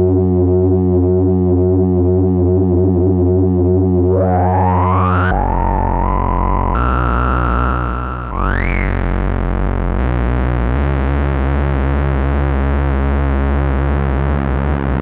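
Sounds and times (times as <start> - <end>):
buzzy synthesizer notes: 3.6 - 15.0.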